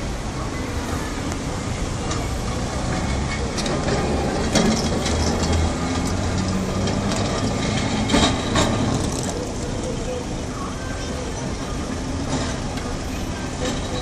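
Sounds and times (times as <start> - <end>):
tram rumbling and clattering on rails: 0.0 - 14.0.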